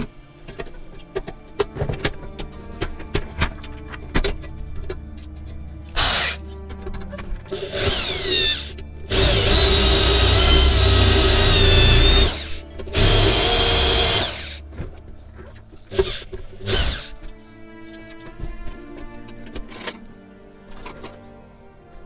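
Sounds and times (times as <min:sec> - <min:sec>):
electric drill boring into steel: 0:06.0 - 0:06.4, 0:07.6 - 0:14.6, 0:16.0 - 0:17.2.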